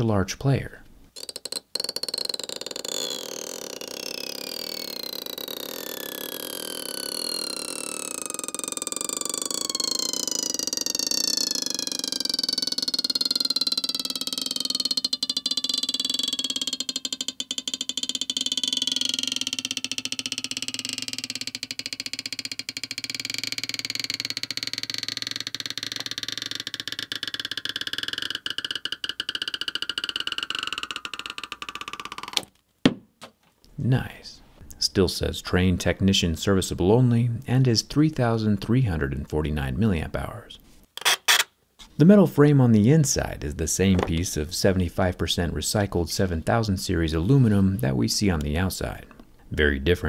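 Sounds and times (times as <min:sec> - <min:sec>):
adhesive strip squealing: 0:01.2 - 0:32.5, 0:41.0 - 0:41.5.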